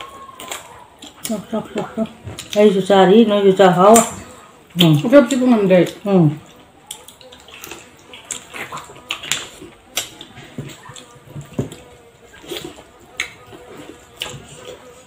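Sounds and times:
wet chewing and lip smacks: 0:00.2 - 0:01.5, 0:02.3 - 0:02.6, 0:04.7 - 0:14.9.

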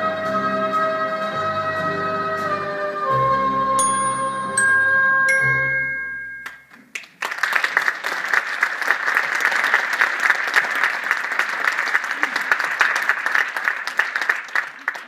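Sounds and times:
stage music held chord: 0:00.0 - 0:06.7
audience applause: 0:06.7 - 0:15.0.

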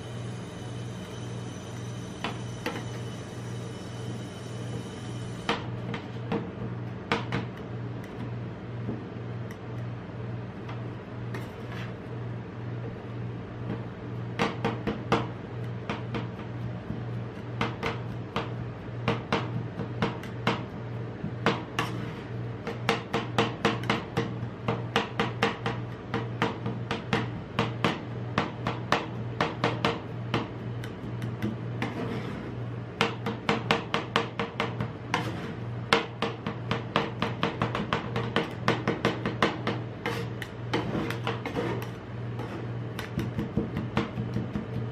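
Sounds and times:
steady low hum: 0:00.0 - 0:44.9
spatulas scraping: 0:11.4 - 0:12.0, 0:21.8 - 0:22.4, 0:31.8 - 0:32.6, 0:35.1 - 0:35.7, 0:40.0 - 0:43.2.

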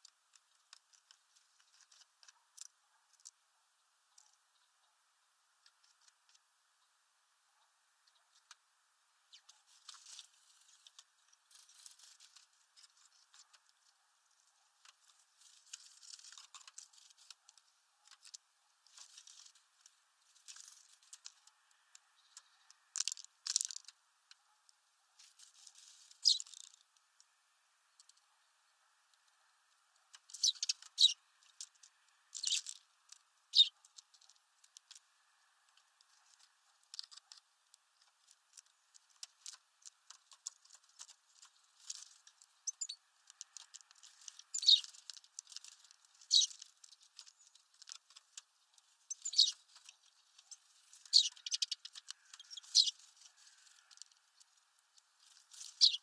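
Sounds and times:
birds pecking and cracking seeds: 0:00.0 - 0:56.0.

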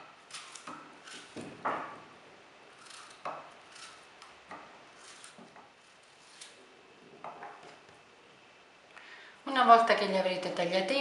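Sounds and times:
knife cutting gourd: 0:00.0 - 0:02.0, 0:02.7 - 0:06.6.

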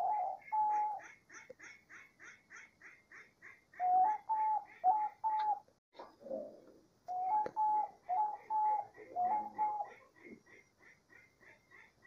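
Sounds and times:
dove cooing: 0:00.0 - 0:01.0, 0:03.8 - 0:10.5.

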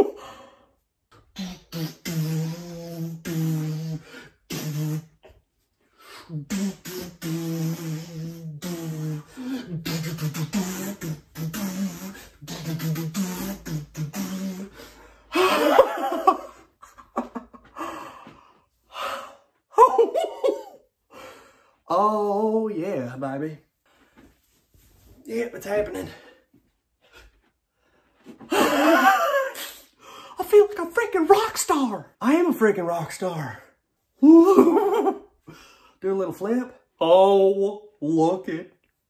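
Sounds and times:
man vocalizing rhythmically: 0:01.1 - 0:05.4, 0:06.1 - 0:17.4.

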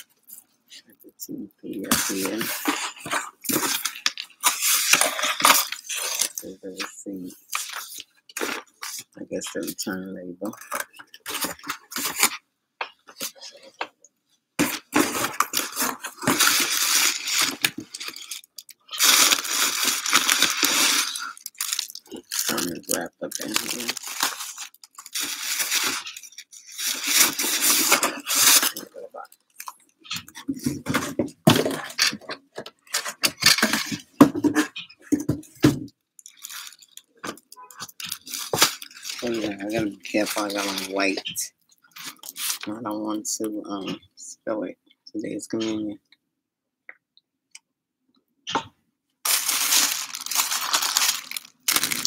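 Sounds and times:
packaging crinkling and rustling: 0:01.8 - 0:09.0, 0:14.6 - 0:29.8, 0:36.2 - 0:42.7, 0:49.2 - 0:52.0.

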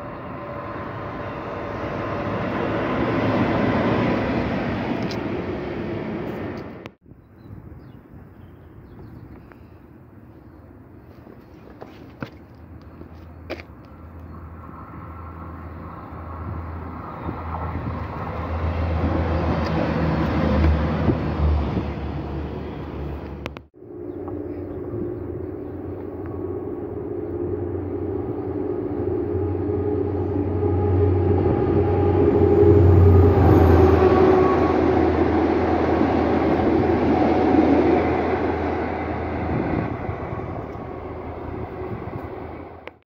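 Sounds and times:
diesel locomotive engines droning: 0:00.0 - 0:43.0.

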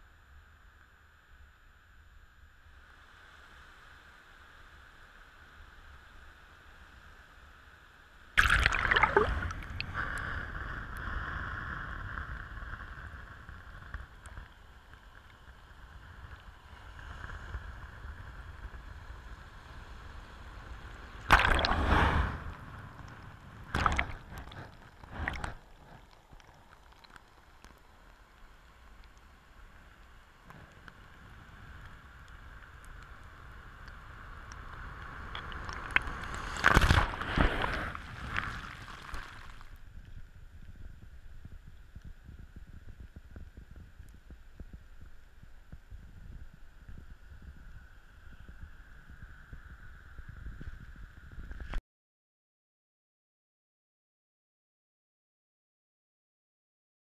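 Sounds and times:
low gurgling water wash: 0:00.3 - 0:51.8
sea water sloshing: 0:08.4 - 0:10.0, 0:21.3 - 0:22.1, 0:23.7 - 0:26.1, 0:35.3 - 0:39.6.

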